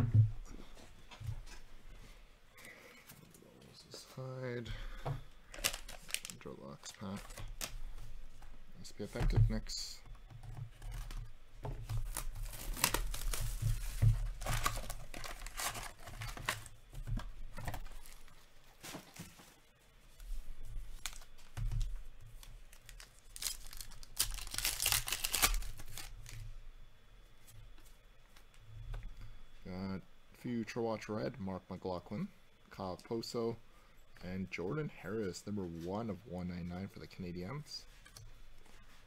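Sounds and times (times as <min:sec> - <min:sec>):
foil wrappers tearing and crinkling: 0:05.5 - 0:07.7, 0:11.9 - 0:16.8, 0:17.7 - 0:19.3, 0:21.0 - 0:21.5, 0:22.6 - 0:26.4.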